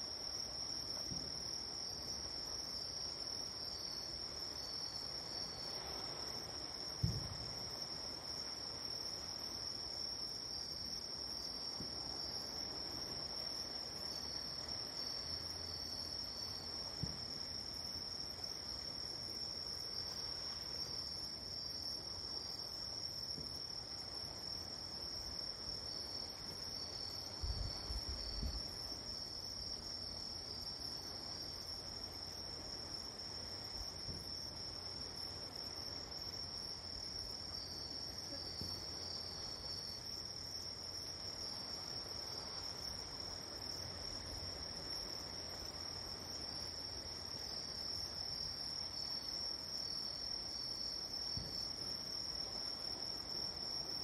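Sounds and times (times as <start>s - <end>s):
low thump: 7.0s - 7.6s.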